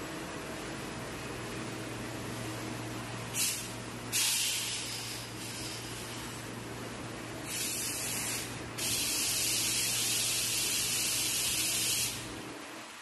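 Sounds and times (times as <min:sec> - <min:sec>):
low machine hum: 0:00.0 - 0:08.8
machinery spraying hiss: 0:03.3 - 0:06.3, 0:07.4 - 0:12.4.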